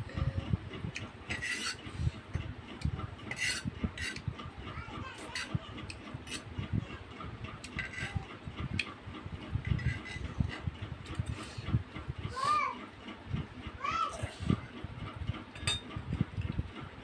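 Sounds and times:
cutlery scraping and clinking bowls: 0:01.3 - 0:01.8, 0:07.7 - 0:08.1, 0:15.6 - 0:15.9.

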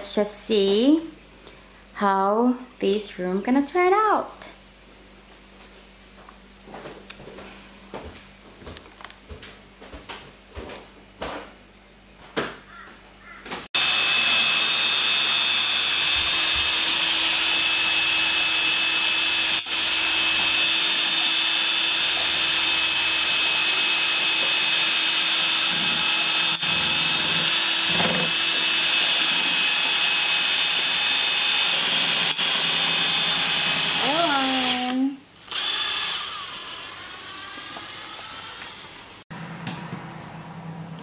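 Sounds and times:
electric drill motor whining: 0:13.8 - 0:39.0.

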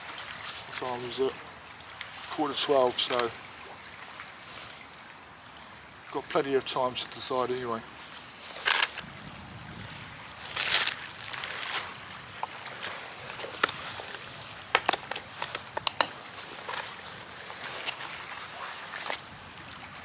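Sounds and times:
plastic packet crinkling: 0:10.5 - 0:11.8.

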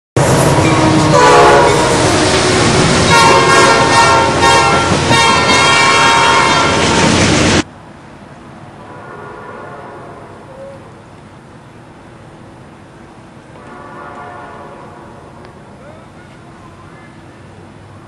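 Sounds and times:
train air horn: 0:00.2 - 0:06.9, 0:08.9 - 0:10.5, 0:13.6 - 0:15.4
diesel locomotives rumbling past: 0:00.2 - 0:18.0
rail noise: 0:00.2 - 0:18.0.

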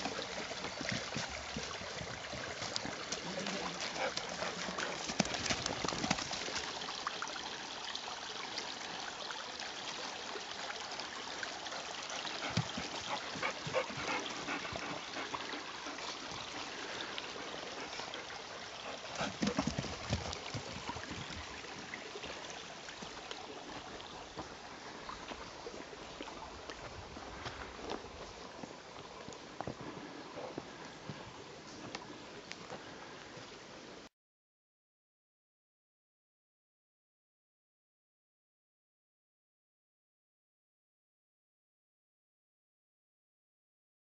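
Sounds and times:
stream trickling: 0:00.0 - 0:34.0.

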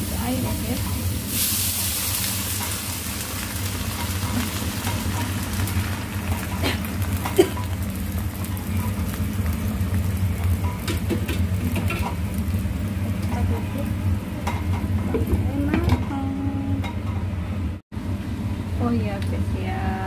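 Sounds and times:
liquid sizzling in hot wok: 0:00.0 - 0:15.3
food bubbling and sizzling: 0:00.0 - 0:15.5.

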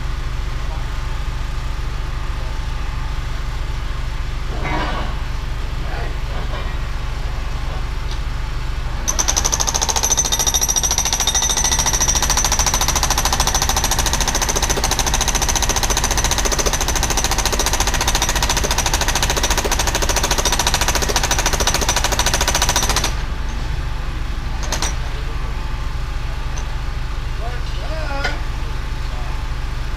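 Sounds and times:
hydraulic breaker hammering: 0:09.1 - 0:23.2, 0:24.6 - 0:25.0.

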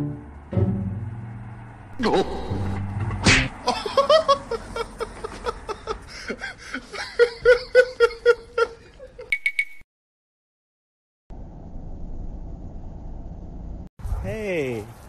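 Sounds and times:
person laughing hard: 0:02.0 - 0:02.7, 0:03.6 - 0:09.3.

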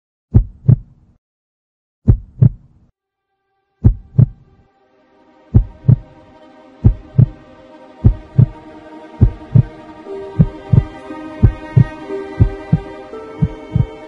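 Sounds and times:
heartbeat thumps: 0:00.3 - 0:01.0, 0:02.0 - 0:02.7, 0:03.8 - 0:04.5, 0:05.5 - 0:06.1, 0:06.8 - 0:07.4, 0:08.0 - 0:08.6, 0:09.2 - 0:09.7, 0:10.4 - 0:14.0
low held music chord: 0:03.2 - 0:14.0.

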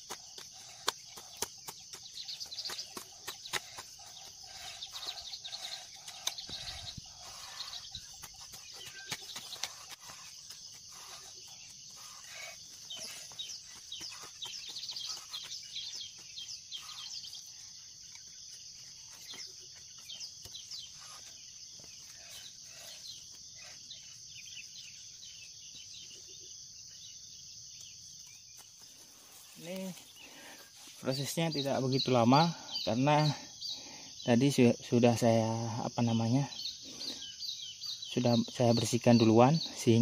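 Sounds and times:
hoe chopping and scraping soil: 0:00.0 - 0:11.4
high-pitched insect drone: 0:00.0 - 0:26.4.

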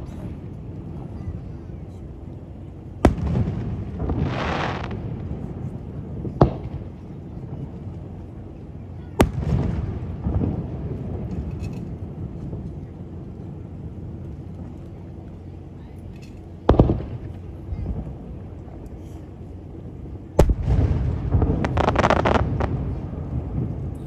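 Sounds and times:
low rumble: 0:00.0 - 0:24.0
firework shells bursting: 0:20.4 - 0:23.0.

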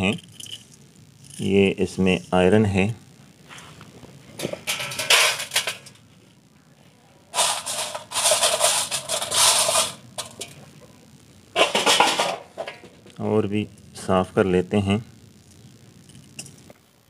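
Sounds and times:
small iron pieces rattling on steel pan: 0:04.6 - 0:06.0, 0:07.4 - 0:10.5.

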